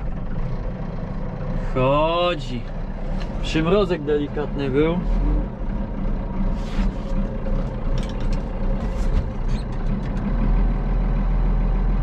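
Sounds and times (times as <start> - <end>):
diesel tractor engine idling: 0.0 - 12.0
light clicks and rattles: 7.8 - 10.3.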